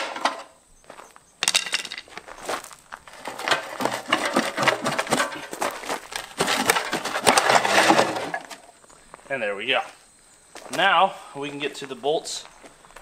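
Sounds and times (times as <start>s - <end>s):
gravel crunching and scraping: 0.0s - 13.0s
metal knocks: 3.1s - 8.6s.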